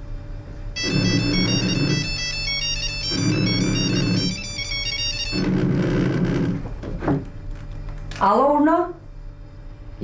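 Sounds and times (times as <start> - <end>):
phone vibration buzz: 0.7 - 7.0
melodic phone ringtone: 0.8 - 5.4.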